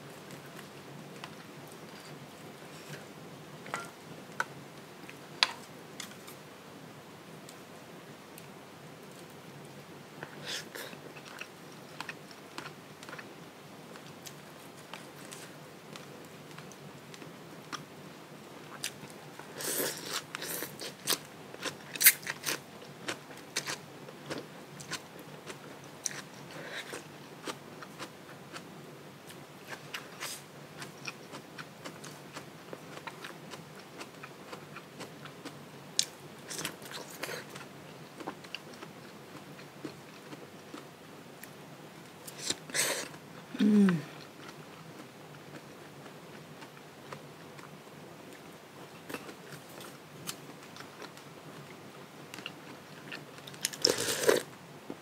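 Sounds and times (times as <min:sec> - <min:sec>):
person chewing: 0:29.7 - 0:34.6, 0:52.4 - 0:54.5.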